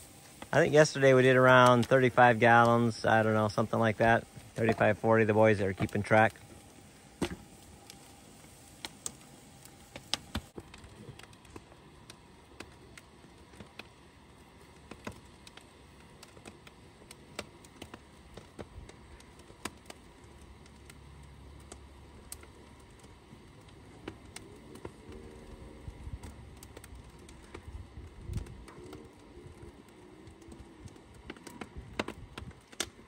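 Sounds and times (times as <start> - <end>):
faint steady background noise: 0.0 - 33.0
wood fire crackling and popping: 0.0 - 33.0.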